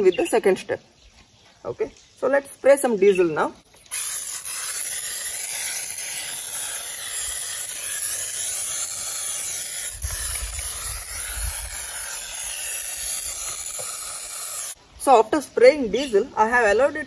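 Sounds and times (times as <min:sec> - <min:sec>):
pressure sprayer hissing: 0:03.7 - 0:14.8.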